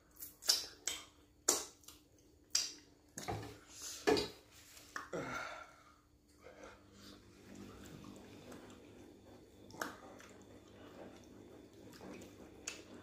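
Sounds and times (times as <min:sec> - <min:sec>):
breathy sound: 0:05.1 - 0:07.3.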